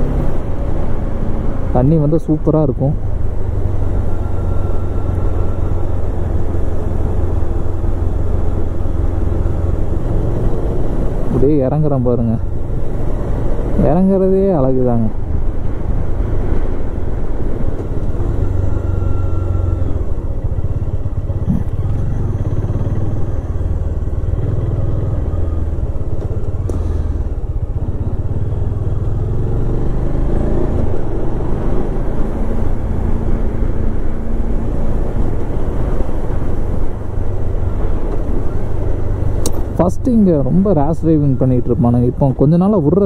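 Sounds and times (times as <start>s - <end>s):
road and wind noise: 0.0s - 43.0s
motorcycle engine running: 15.3s - 41.4s.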